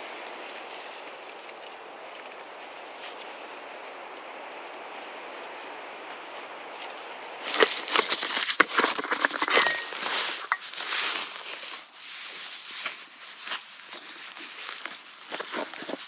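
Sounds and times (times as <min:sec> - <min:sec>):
steady hiss: 0:00.0 - 0:08.4
camping gear rustling: 0:00.0 - 0:16.0.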